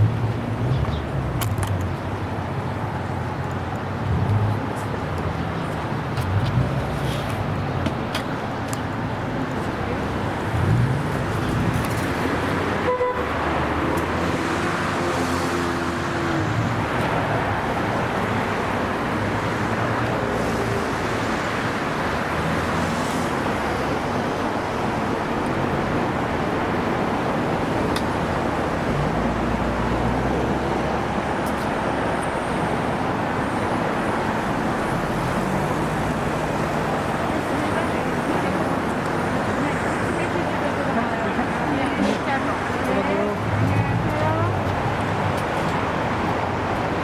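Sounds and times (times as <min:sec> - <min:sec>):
cars passing: 0:00.0 - 0:47.0.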